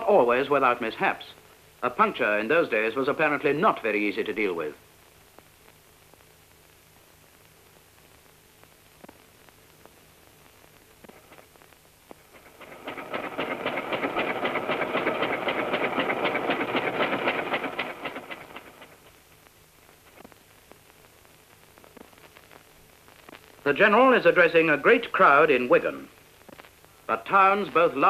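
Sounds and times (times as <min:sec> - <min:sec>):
rapid mechanical clatter: 0:12.2 - 0:19.2.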